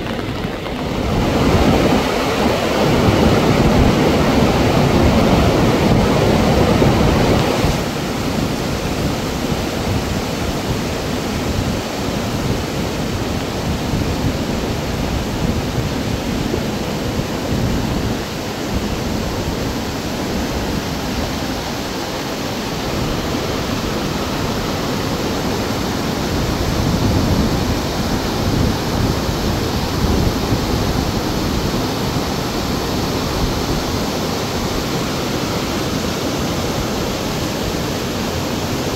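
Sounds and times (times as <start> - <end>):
flood water rushing over rocks: 0.0 - 38.9.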